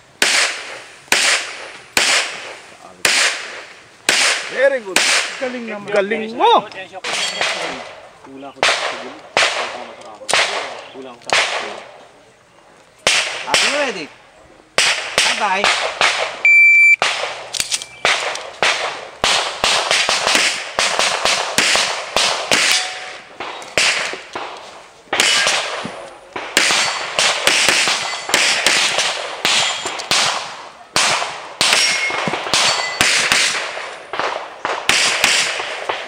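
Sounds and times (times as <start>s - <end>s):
pistol shots: 0.2s - 5.7s, 7.0s - 8.0s, 8.6s - 12.0s, 13.0s - 14.0s, 14.8s - 16.4s, 17.0s - 36.0s
shot timer beep: 16.4s - 17.0s.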